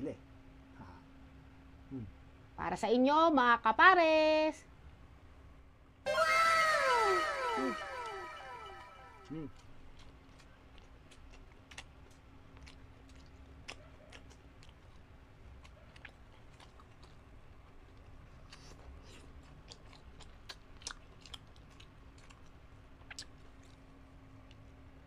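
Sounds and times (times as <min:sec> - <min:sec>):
faint steady hum: 0:00.0 - 0:25.0
close chewing mouth clicks: 0:09.5 - 0:24.7.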